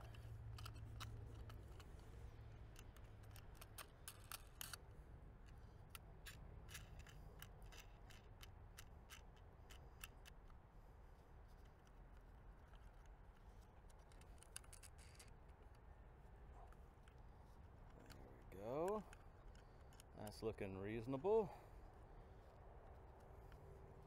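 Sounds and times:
small clicks and ticks: 0.0s - 24.0s.

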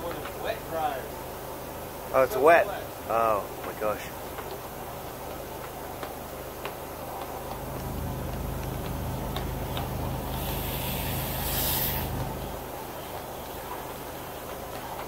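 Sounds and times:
low engine-like hum: 0.0s - 15.0s
brief hiss: 10.3s - 12.3s.

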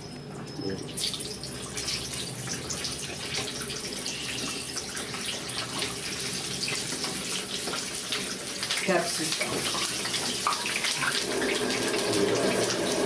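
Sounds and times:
peppers sizzling in hot oil: 0.0s - 13.0s.

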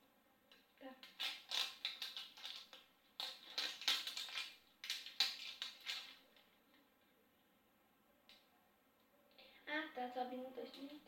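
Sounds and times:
plastic wrapping crinkling: 1.0s - 6.5s.

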